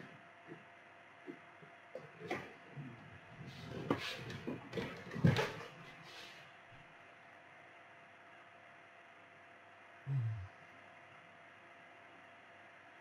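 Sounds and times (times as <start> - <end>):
faint steady hum: 0.0 - 13.0
knocks and rustles of handling: 3.5 - 6.1.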